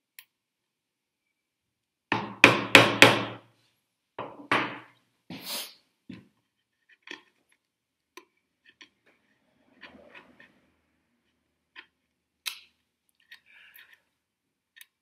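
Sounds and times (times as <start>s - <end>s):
chisel scrape: 8.6s - 12.2s.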